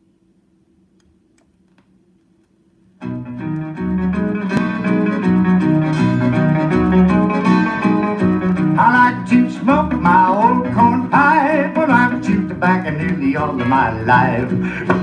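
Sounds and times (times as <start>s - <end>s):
string band instrumental: 3.1s - 15.0s.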